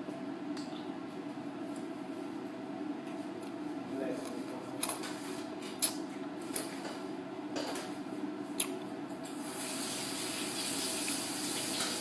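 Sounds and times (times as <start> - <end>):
steady room hum: 0.0 - 12.0
water running from a tap: 9.4 - 12.0.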